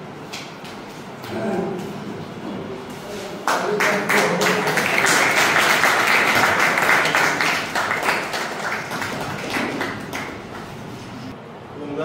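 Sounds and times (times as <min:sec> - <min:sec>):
people clapping: 0:03.4 - 0:11.3.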